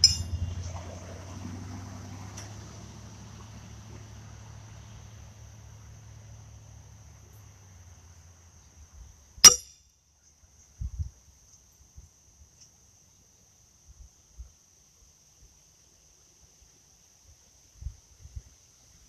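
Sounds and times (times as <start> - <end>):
thin steady high tone: 0.0 - 0.5
horseshoe clanging: 0.0 - 0.6, 9.4 - 9.8.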